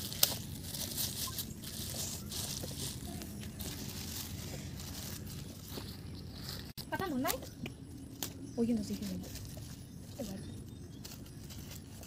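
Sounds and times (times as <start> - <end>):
plastic bags crinkling: 0.0 - 6.8.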